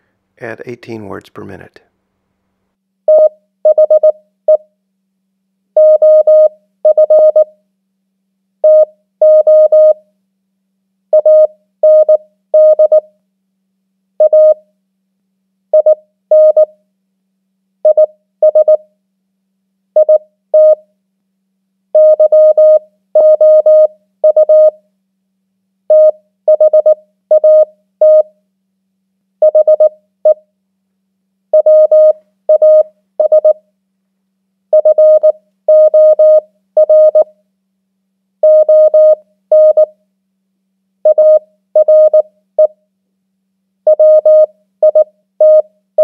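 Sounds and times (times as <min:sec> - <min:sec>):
morse code beeps: 0:29.4 - 0:29.9, 0:31.6 - 0:33.6, 0:34.8 - 0:37.3, 0:38.4 - 0:39.9, 0:41.1 - 0:42.2, 0:43.9 - 0:45.6.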